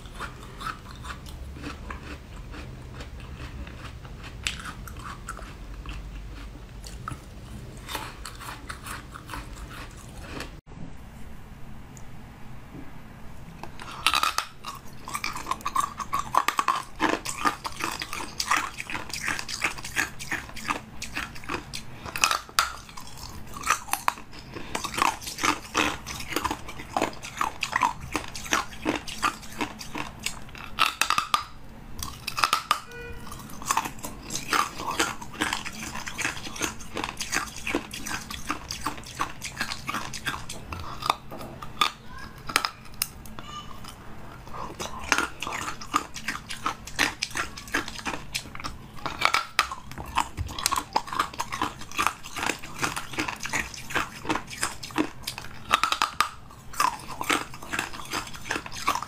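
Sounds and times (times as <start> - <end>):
biting and crunching ice: 0.0 - 7.2, 13.8 - 43.1, 44.6 - 59.0.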